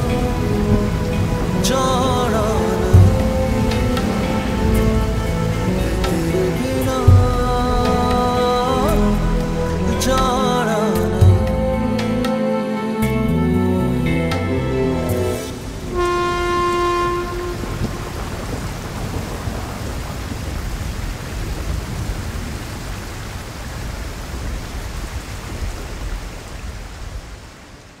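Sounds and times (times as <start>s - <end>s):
low rumble of thunder: 0.0s - 8.2s, 15.7s - 27.3s
steady rain: 0.0s - 28.0s
train horn held note: 14.3s - 18.6s.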